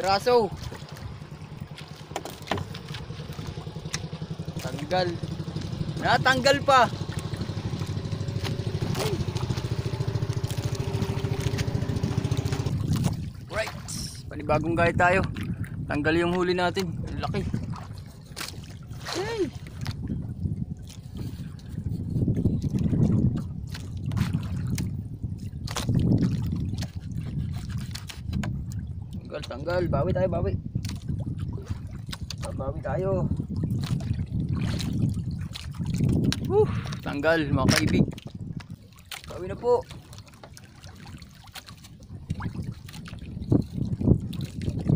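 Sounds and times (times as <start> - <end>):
boat engine idling: 0.0 - 15.2
water lapping against a boat: 0.0 - 44.9.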